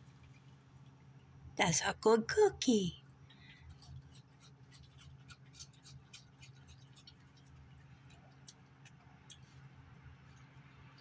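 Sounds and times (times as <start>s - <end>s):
raccoon chewing: 3.2s - 11.0s.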